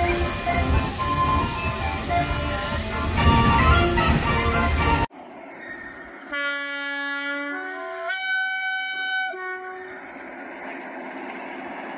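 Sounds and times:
locomotive horn: 0:00.0 - 0:05.1, 0:06.3 - 0:10.2
faint steady rumble: 0:09.4 - 0:11.9.

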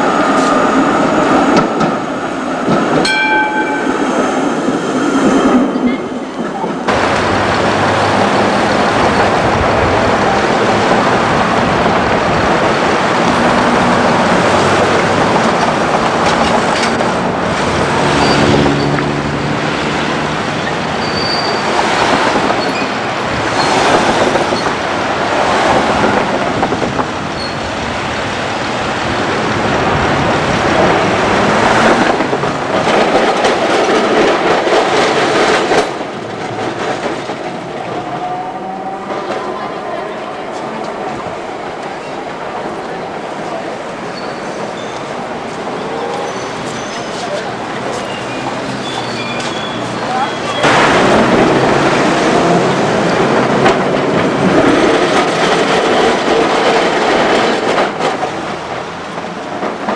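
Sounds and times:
tram wheels on rails: 0:00.0 - 0:59.9
high wheel squeals: 0:18.1 - 0:19.0, 0:20.6 - 0:21.8, 0:27.4 - 0:27.7, 0:45.8 - 0:50.7.

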